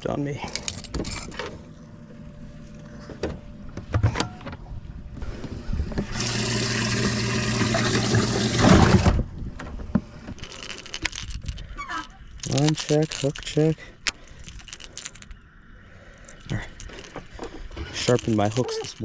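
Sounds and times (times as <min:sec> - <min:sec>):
water pump running: 0:06.0 - 0:09.1.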